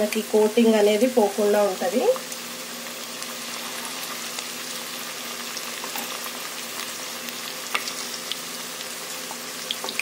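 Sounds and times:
oil sizzling: 0:00.0 - 0:10.0
oil crackling and popping: 0:02.0 - 0:10.0.

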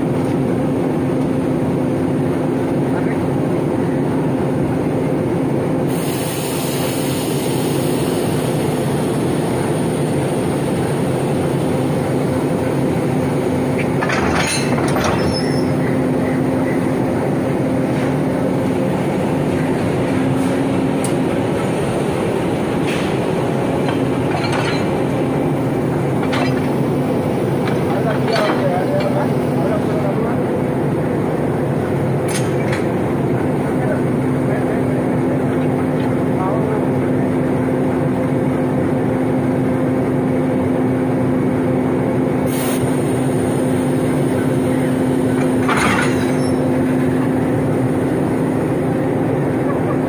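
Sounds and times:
diesel locomotive engine idling: 0:00.0 - 0:50.0
air hiss: 0:05.9 - 0:08.7, 0:42.5 - 0:43.9.

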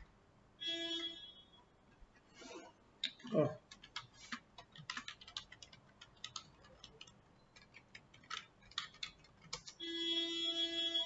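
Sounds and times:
keyboard typing clicks: 0:03.0 - 0:09.8.

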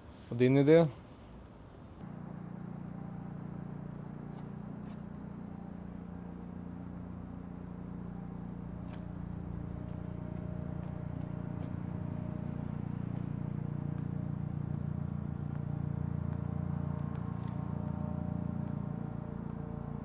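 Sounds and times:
low hum: 0:01.9 - 0:20.0.

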